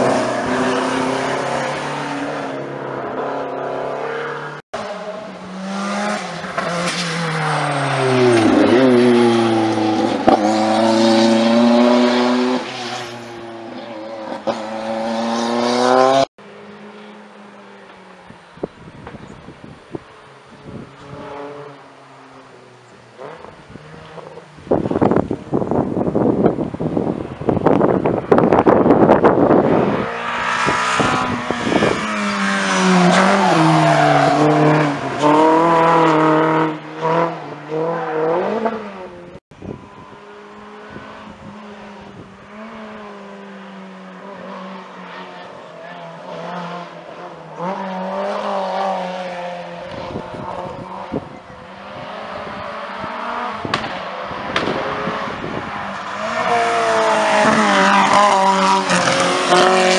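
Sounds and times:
rally car engine revving: 0:00.0 - 0:16.3, 0:27.6 - 0:39.4, 0:40.5 - 0:59.9
distant car climbing and revving: 0:00.0 - 0:59.9.

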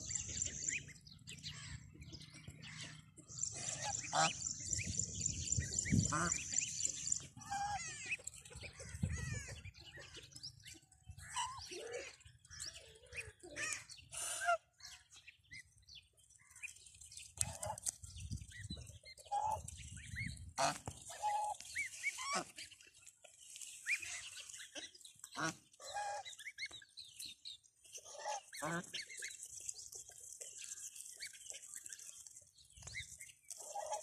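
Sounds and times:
goslings peeping: 0:00.0 - 0:15.8, 0:16.4 - 0:34.0
geese calling: 0:02.6 - 0:10.2, 0:19.2 - 0:22.6.

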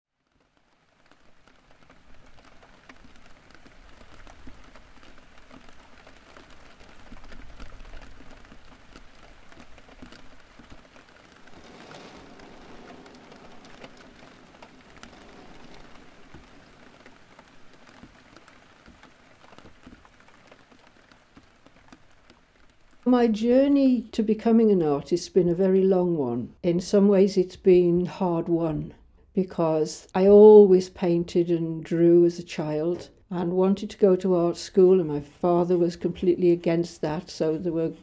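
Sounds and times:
raindrops pattering on wet surfaces: 0:00.1 - 0:27.7
steady rain falling: 0:00.1 - 0:38.0.

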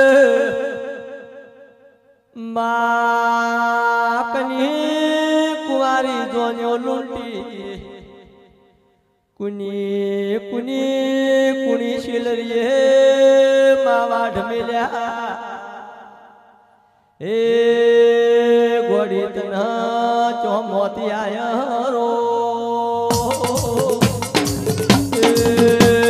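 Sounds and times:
voice singing long held notes: 0:22.1 - 0:26.0.

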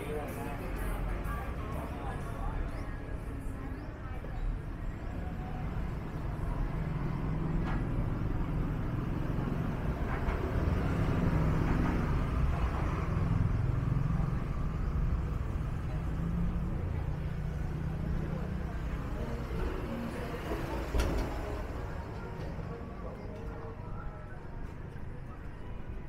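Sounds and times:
passing vehicles rumbling: 0:00.0 - 0:26.0.

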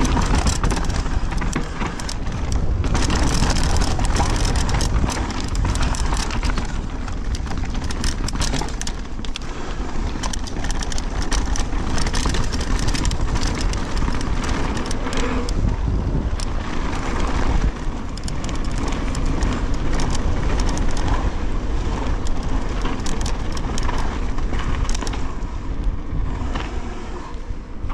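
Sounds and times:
tyres crunching over gravel: 0:00.0 - 0:25.4
bike rattling and clattering: 0:00.0 - 0:27.9
wind buffeting microphone: 0:00.0 - 0:27.9.

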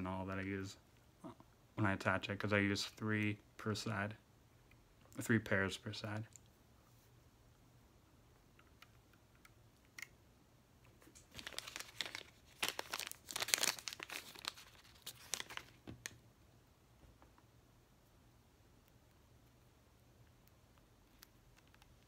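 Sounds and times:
plastic wrapper crinkling: 0:11.0 - 0:16.2.

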